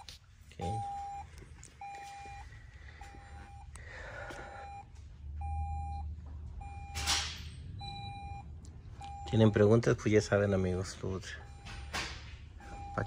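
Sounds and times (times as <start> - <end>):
car warning chime beeping: 0.0 - 13.0.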